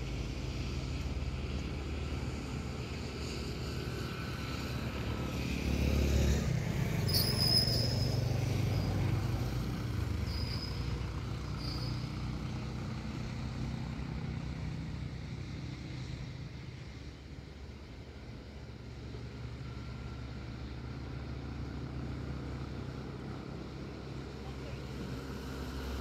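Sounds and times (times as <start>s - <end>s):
passing vehicles engine rumble: 0.0s - 26.0s
motorcycle passing: 0.5s - 17.8s, 18.5s - 26.0s
short high-pitched squeaks: 7.0s - 8.9s, 10.2s - 11.0s, 11.6s - 12.2s.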